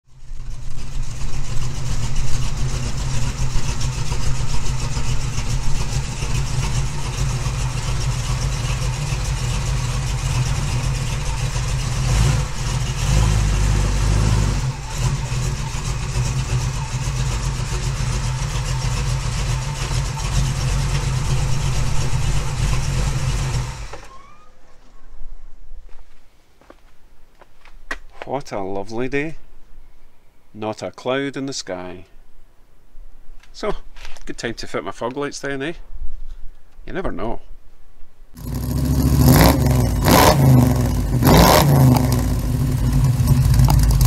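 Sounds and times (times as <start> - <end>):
car engine exhaust rumble: 0.0 - 24.2, 38.4 - 44.0.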